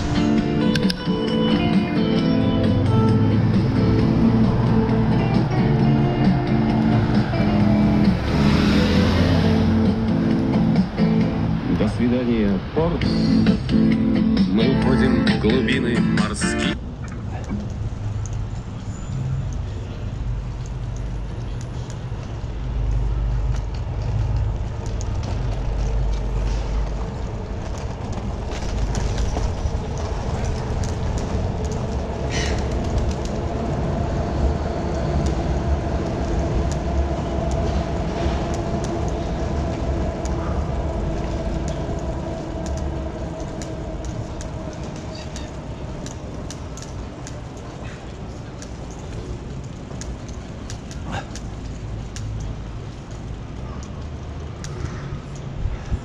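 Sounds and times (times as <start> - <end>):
bicycle road rumble: 0.0 - 56.0
wind buffeting microphone: 22.3 - 56.0.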